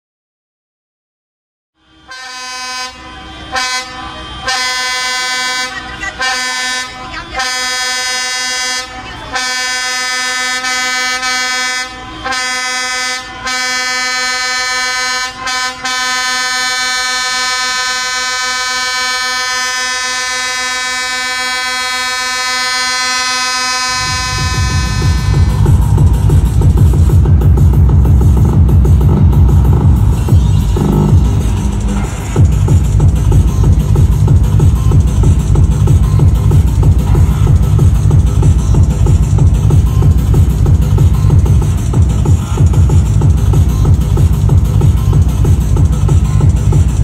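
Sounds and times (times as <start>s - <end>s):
air horn blasts: 1.8s - 27.4s.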